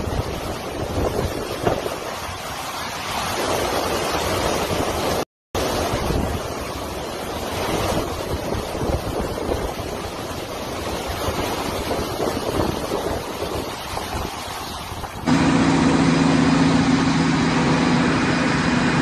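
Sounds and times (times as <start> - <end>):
heavy rain: 0.0 - 19.0
hurricane wind: 0.0 - 19.0.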